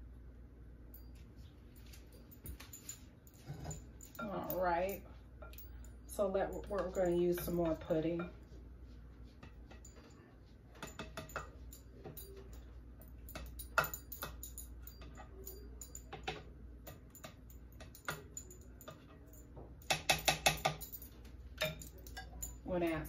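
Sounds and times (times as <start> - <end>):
ladle tapping glass bowl: 10.8 - 23.0.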